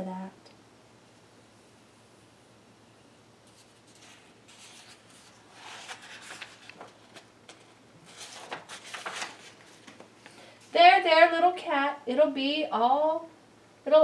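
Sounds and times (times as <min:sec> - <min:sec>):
paper pages rustling: 0:03.5 - 0:10.4.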